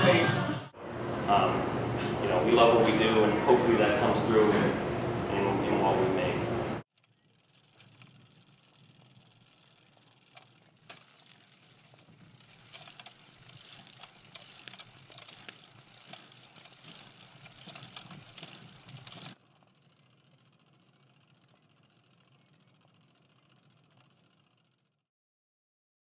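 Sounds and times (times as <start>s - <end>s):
sharp clicks: 6.9s - 24.9s.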